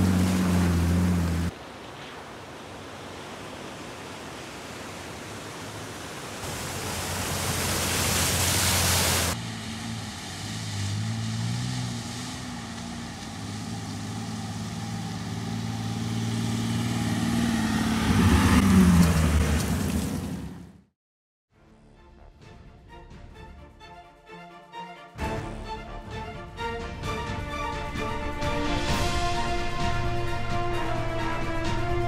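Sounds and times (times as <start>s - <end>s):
engine drone: 0.0s - 1.5s, 6.4s - 20.7s
rush of road noise: 0.0s - 20.8s.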